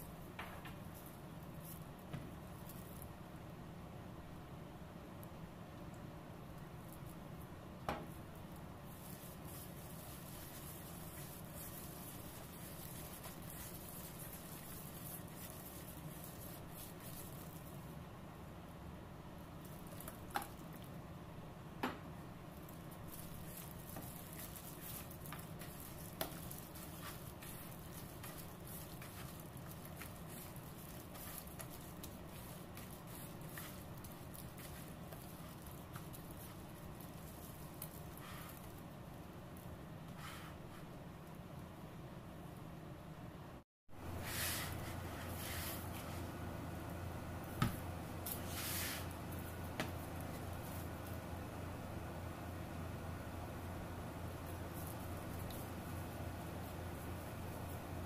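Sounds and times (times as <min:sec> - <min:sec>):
hissy rustles: 0:47.4 - 0:51.6.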